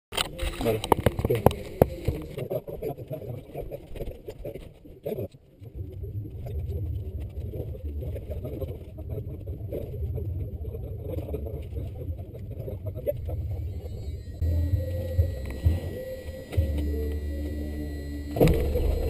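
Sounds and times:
plane engine drone in cabin: 0:12.8 - 0:19.0.

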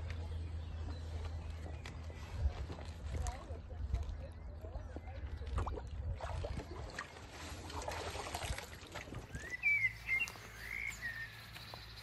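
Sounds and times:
water sloshing and trickling: 0:00.0 - 0:12.0
bird chirping: 0:09.3 - 0:12.0.

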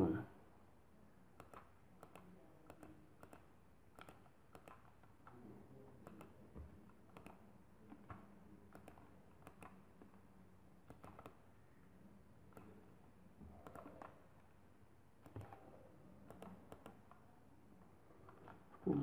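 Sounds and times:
faint computer mouse clicks: 0:01.4 - 0:05.4, 0:06.0 - 0:06.4, 0:07.1 - 0:07.5, 0:08.1 - 0:09.8, 0:10.8 - 0:11.4, 0:15.2 - 0:17.2.

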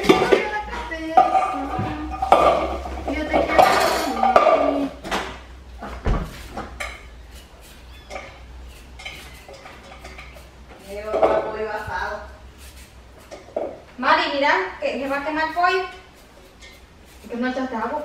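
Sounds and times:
dishes and metal bowl clinking: 0:00.0 - 0:05.3, 0:07.9 - 0:11.6.

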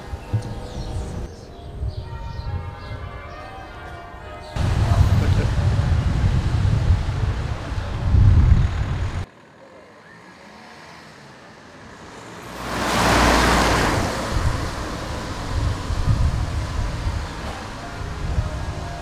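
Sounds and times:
wind buffeting microphone: 0:00.0 - 0:09.3, 0:13.4 - 0:19.0
car passing: 0:04.6 - 0:19.0.

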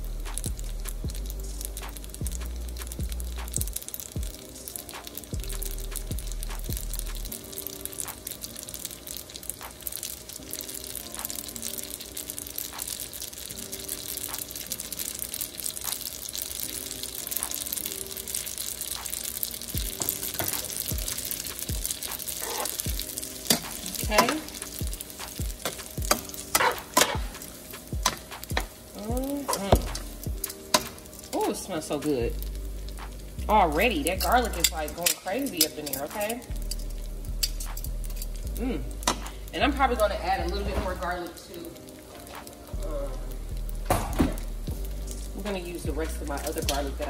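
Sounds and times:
food sizzling in oil: 0:00.0 - 0:47.0
utensil scraping a pan: 0:22.4 - 0:22.8.

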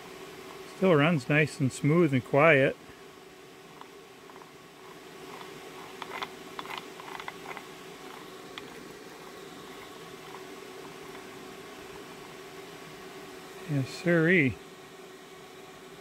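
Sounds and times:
steady hum: 0:00.0 - 0:16.0
gearbox gears clicking: 0:05.3 - 0:08.7.

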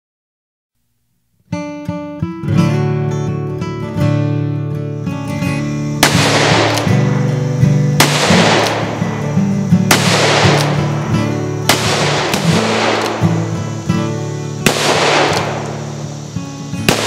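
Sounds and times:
guitar music: 0:01.5 - 0:17.0
revolver gunshots with echo: 0:06.0 - 0:17.0.

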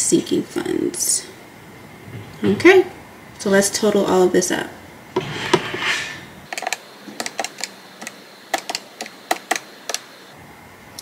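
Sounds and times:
calculator keys clicking: 0:06.5 - 0:07.7, 0:08.5 - 0:10.0.

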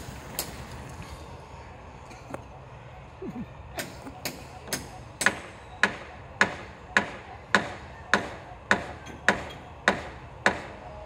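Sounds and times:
hammer blows ringing: 0:03.8 - 0:10.9.

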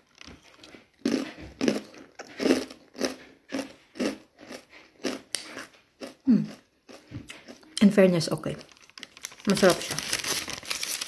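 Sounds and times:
crunching crisp chip: 0:08.6 - 0:11.0.

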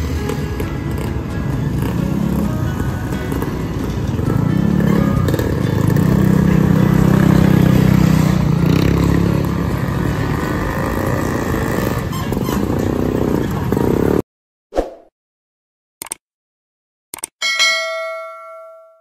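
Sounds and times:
motorcycle engine running: 0:00.0 - 0:14.2
street traffic: 0:00.0 - 0:14.2
short chime: 0:17.4 - 0:19.0.

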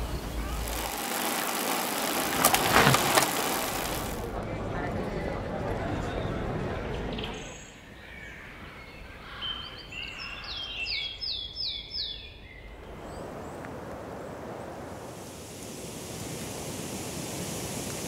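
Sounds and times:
outdoor background noise: 0:00.0 - 0:18.0
songbird singing: 0:06.1 - 0:14.9.

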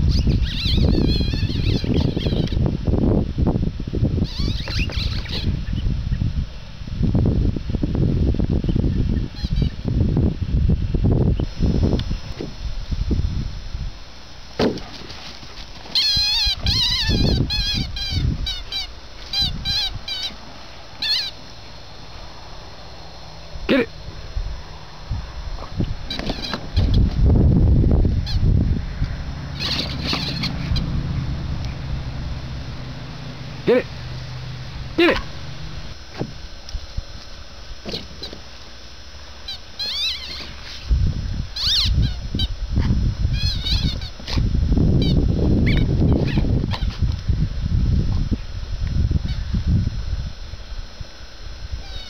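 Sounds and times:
rubber toy squeaking: 0:00.1 - 0:02.6, 0:04.2 - 0:05.5, 0:15.9 - 0:20.4, 0:21.0 - 0:21.4, 0:26.1 - 0:27.0, 0:29.6 - 0:30.9, 0:39.5 - 0:40.8, 0:41.6 - 0:42.6, 0:43.3 - 0:44.2.

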